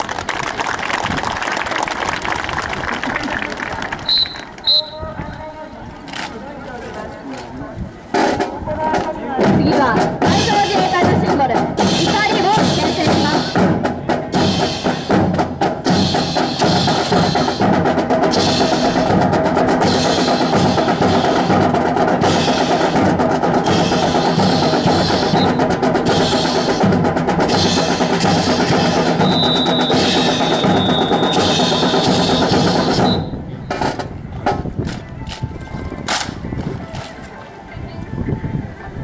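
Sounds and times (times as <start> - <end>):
marching band drums: 8.1 - 35.5.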